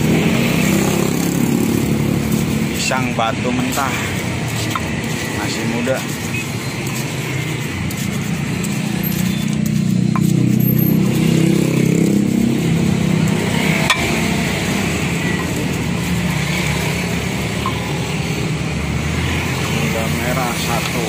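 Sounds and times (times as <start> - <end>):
engine hum: 0.0 - 21.0
stone pestle grinding paste: 0.0 - 21.0.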